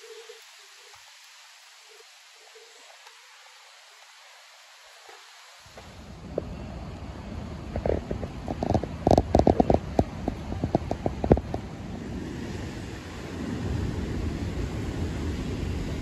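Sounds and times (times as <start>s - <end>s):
wind buffeting microphone: 5.8s - 16.0s
rain tapping on microphone: 7.6s - 12.1s.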